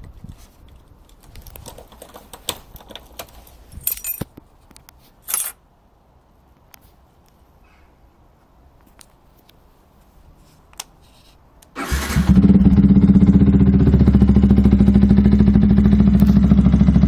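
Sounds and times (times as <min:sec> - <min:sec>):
keys and wiring rattling: 0:00.7 - 0:04.3, 0:05.2 - 0:05.6
keys jingling: 0:01.4 - 0:04.3, 0:05.2 - 0:05.6.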